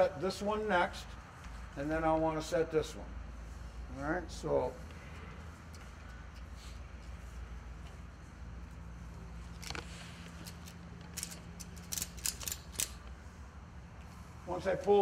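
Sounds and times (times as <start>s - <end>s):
ratchet buckle clicking: 9.6s - 13.2s.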